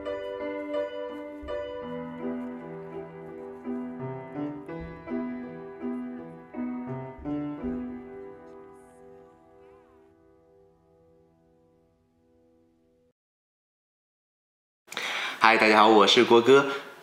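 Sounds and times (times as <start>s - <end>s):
piano melody: 0.0s - 13.1s.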